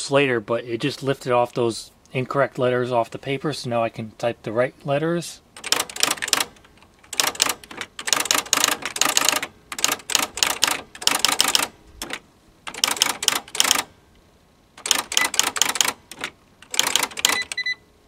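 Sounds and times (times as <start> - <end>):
electronic typewriter printing: 5.6 - 13.9, 14.8 - 17.8
short beep: 17.3 - 17.8.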